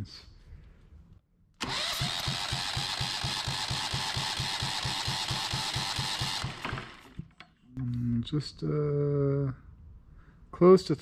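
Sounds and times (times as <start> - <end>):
engine compression pulses: 1.6 - 7.2
starter motor whine: 1.6 - 7.4.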